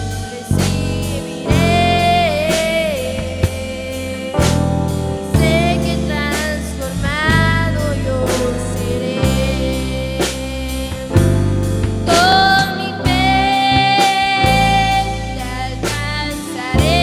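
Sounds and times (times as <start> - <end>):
girl singing: 0.0 - 11.2, 12.0 - 17.0
drum kit steady beat: 0.0 - 17.0
electric bass guitar: 0.0 - 17.0
keyboards: 0.0 - 17.0.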